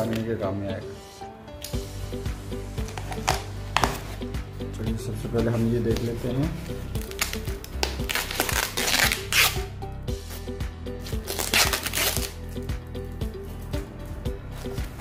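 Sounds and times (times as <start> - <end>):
background music with beat: 0.0 - 15.0
foam packing sheet crinkling: 7.0 - 9.6, 11.2 - 12.4.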